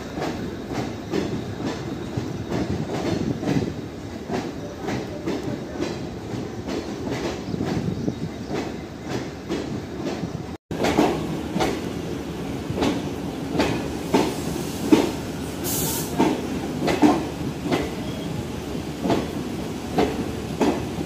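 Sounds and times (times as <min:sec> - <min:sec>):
train wheels clacking over rail joints: 0:00.0 - 0:07.9, 0:08.5 - 0:12.0, 0:12.7 - 0:18.2, 0:19.0 - 0:21.0
train rumble: 0:00.0 - 0:21.0
brief hiss: 0:14.2 - 0:16.2.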